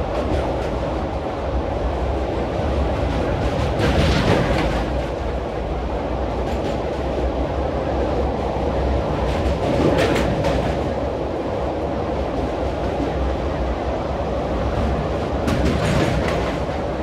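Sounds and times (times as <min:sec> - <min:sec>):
train wheels rumbling on rails: 0:00.0 - 0:17.0
train wheels clattering clicks: 0:02.9 - 0:05.3, 0:06.3 - 0:07.3, 0:09.2 - 0:11.0, 0:14.9 - 0:17.0.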